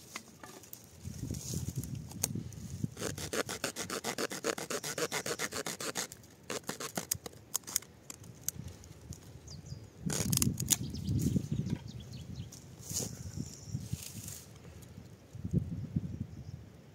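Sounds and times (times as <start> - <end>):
pocketknife saw cutting wood: 3.0 - 7.8.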